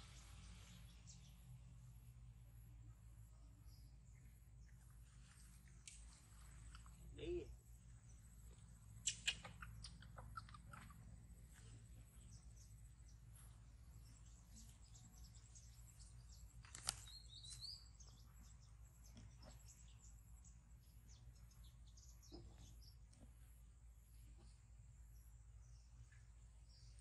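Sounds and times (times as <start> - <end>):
low steady hum: 0.0 - 27.0
high-pitched animal chirps: 9.0 - 11.0.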